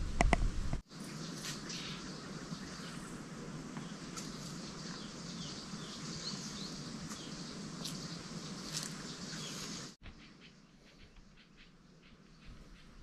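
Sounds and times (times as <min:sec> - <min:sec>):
steady background hiss: 0:00.0 - 0:13.0
small birds chirping: 0:00.9 - 0:13.0.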